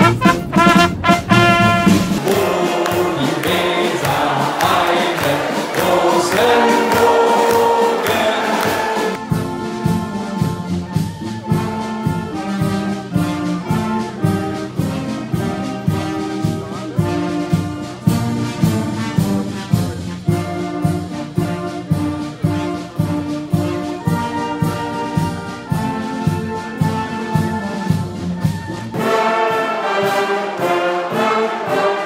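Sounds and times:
brass band playing: 0.0 - 32.0.

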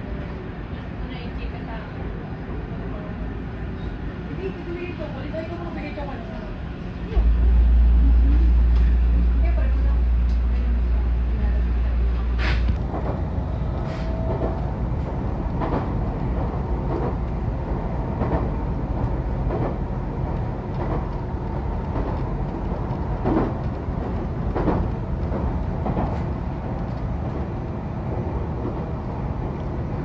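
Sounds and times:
train running rumble: 0.0 - 30.0.

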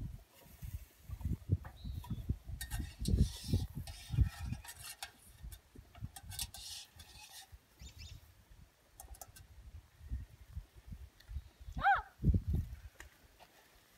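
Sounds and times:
metal ladle scraping in pot: 2.1 - 7.6.

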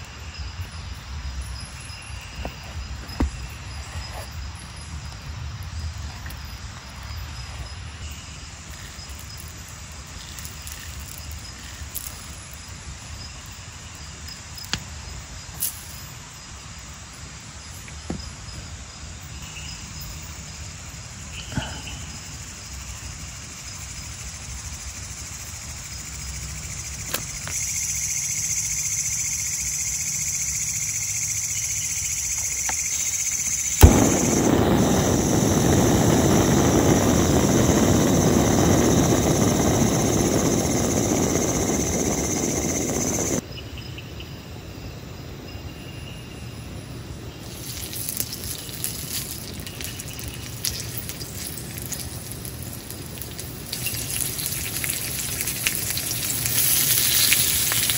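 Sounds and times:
crickets chirping: 0.0 - 57.9
gas hissing: 33.7 - 43.4
gas burner roaring: 33.8 - 43.4
meat sizzling: 33.8 - 43.4, 47.4 - 57.9.

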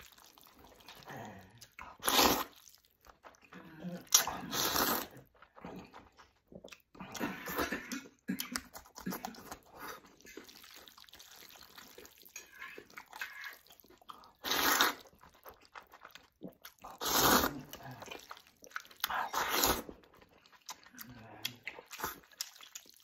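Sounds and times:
wet chewing and lip-smacking: 0.0 - 23.0
man slurping noodles: 1.7 - 2.7, 4.0 - 6.1, 14.3 - 15.2, 16.4 - 18.2, 19.2 - 20.0.

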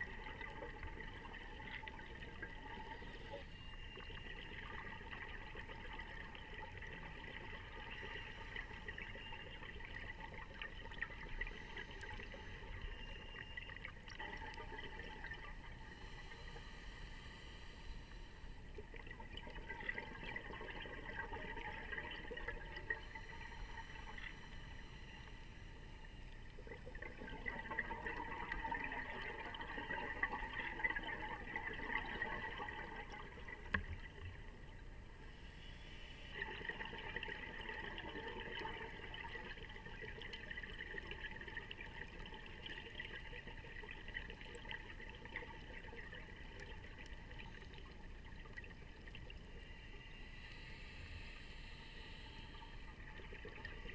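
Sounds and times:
underwater scuba breathing bubbles: 4.2 - 13.4, 14.1 - 53.9.

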